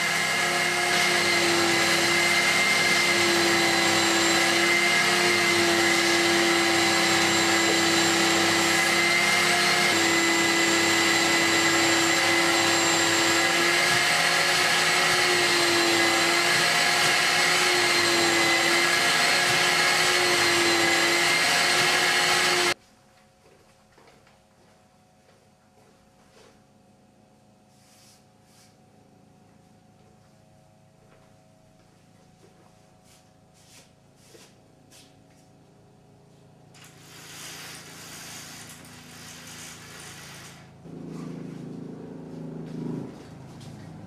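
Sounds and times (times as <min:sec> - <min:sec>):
vacuum cleaner motor running: 0:00.0 - 0:22.8.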